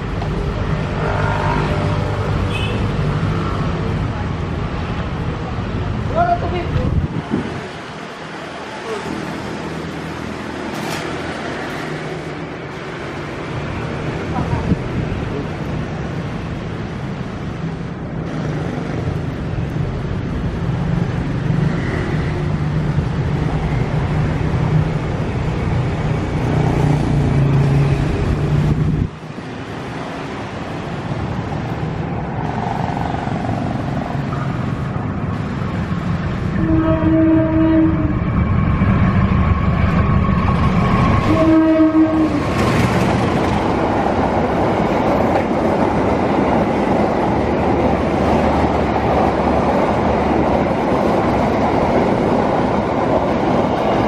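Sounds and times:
diesel locomotive engine drone: 0.0s - 54.0s
train carriages rolling past: 0.0s - 54.0s
multi-tone train horn: 0.9s - 2.9s, 36.5s - 38.2s, 41.0s - 42.6s.

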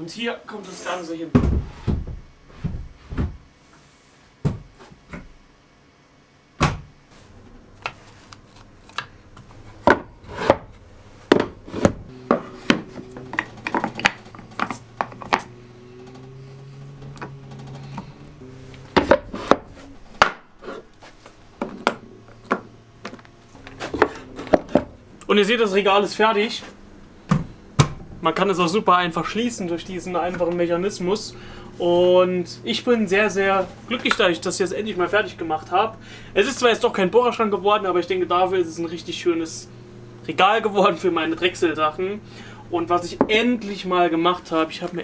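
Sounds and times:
wooden knocks and clacks: 11.3s - 15.5s.

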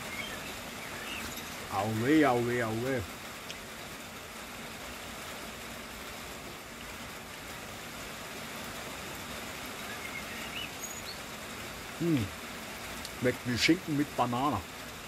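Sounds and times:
bird chirps: 0.0s - 1.6s, 9.8s - 11.3s
rain falling: 0.0s - 15.0s.

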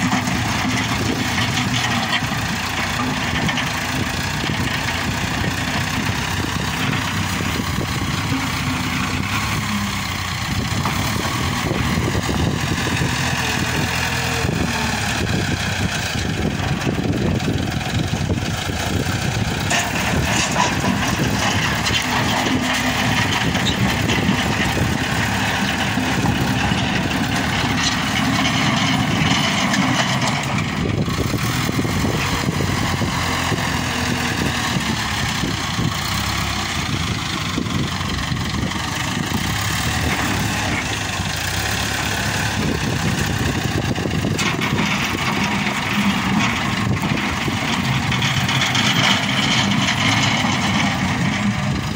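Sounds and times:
diesel engine running: 0.0s - 51.9s.

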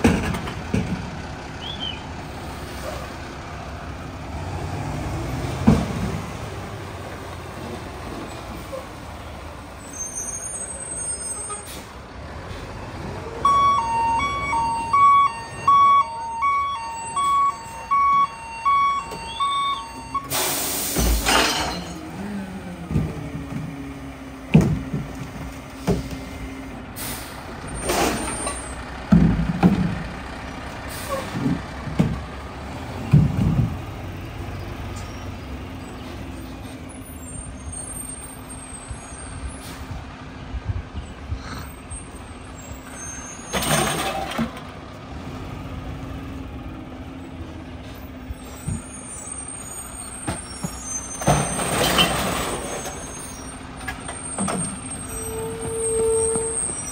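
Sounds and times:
reversing alarm beeping: 13.4s - 20.8s
air brake hiss: 20.3s - 21.2s, 27.0s - 27.4s.

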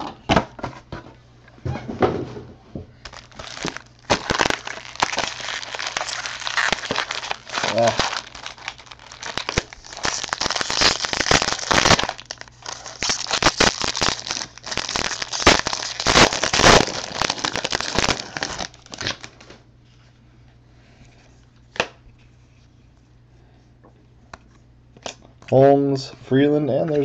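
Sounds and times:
foil wrappers tearing and crinkling: 3.0s - 19.5s.

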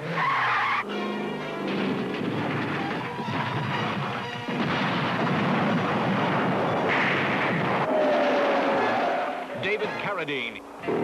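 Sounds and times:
car crash impacts: 1.6s - 9.5s.

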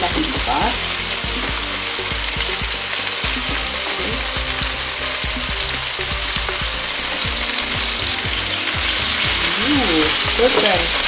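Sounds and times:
chicken sizzling in a pan: 0.0s - 11.0s.

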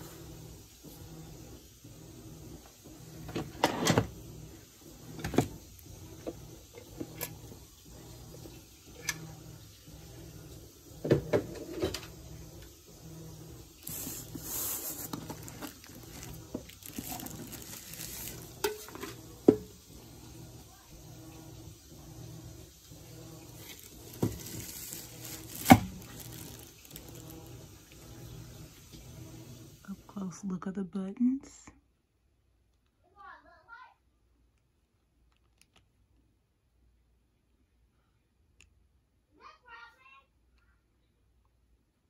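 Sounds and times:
plastic wrapping rustling: 13.8s - 19.5s, 23.4s - 28.3s
lid and pot clattering: 16.7s - 19.7s.

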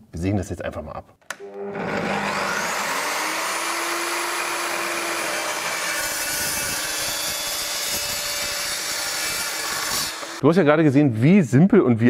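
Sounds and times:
chop saw cutting steel: 1.4s - 10.4s.

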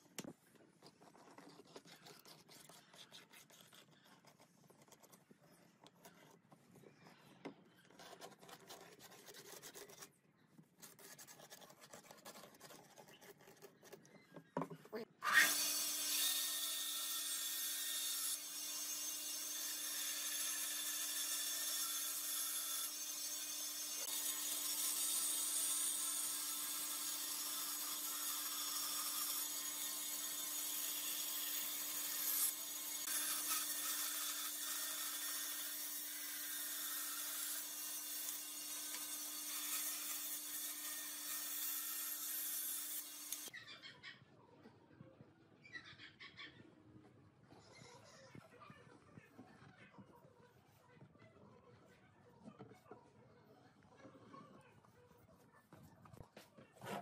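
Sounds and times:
pencil scratching on wood: 0.8s - 6.6s, 7.7s - 10.2s, 10.8s - 14.2s
power saw cutting wood: 15.2s - 43.5s.

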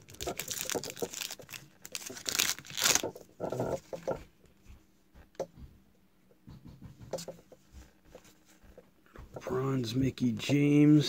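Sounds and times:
cards clicking and rustling: 0.0s - 3.2s
wrapper tearing and crinkling: 0.0s - 3.2s.

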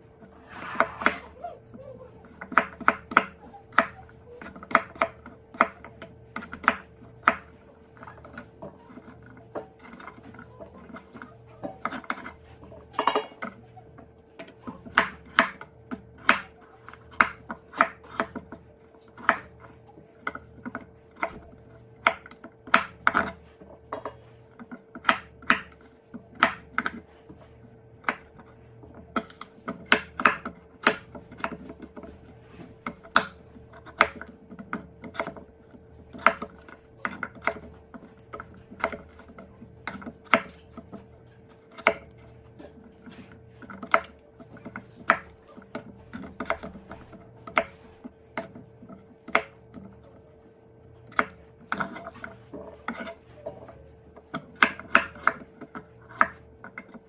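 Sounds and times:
knife chopping on wooden board: 2.2s - 13.6s, 14.4s - 57.0s.

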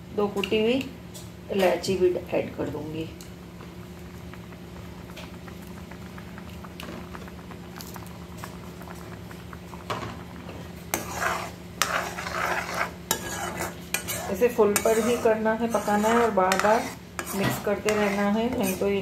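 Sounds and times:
steady low hum: 0.0s - 19.0s
milk simmering with faint bubbling: 2.7s - 19.0s
spoon scraping an iron pan: 10.9s - 19.0s.

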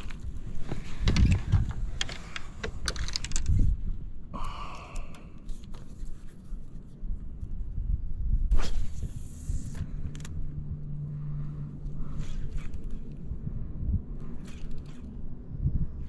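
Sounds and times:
low rumble: 6.4s - 16.0s.

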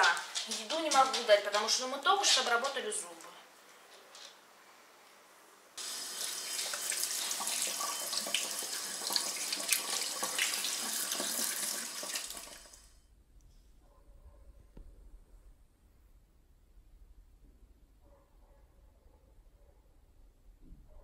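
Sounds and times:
toothbrush rinsed under water: 5.8s - 12.8s
tap water running into sink: 5.8s - 12.9s.

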